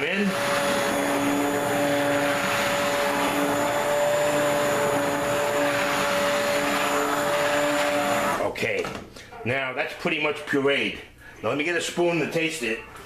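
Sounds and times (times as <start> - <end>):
immersion blender motor whine: 0.0 - 8.5.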